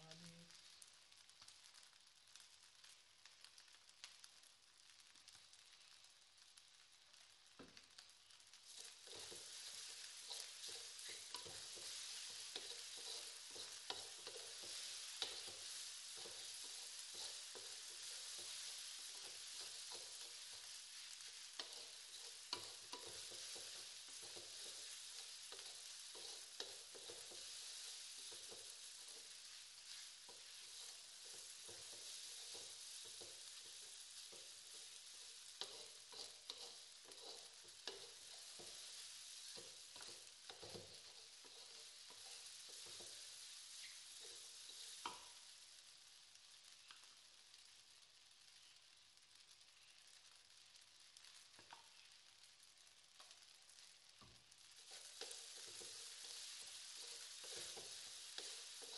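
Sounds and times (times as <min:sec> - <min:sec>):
fried rice sizzling in a wok: 0:00.0 - 0:58.9
wooden spatula scraping a pan: 0:08.6 - 0:45.5, 0:54.7 - 0:58.9.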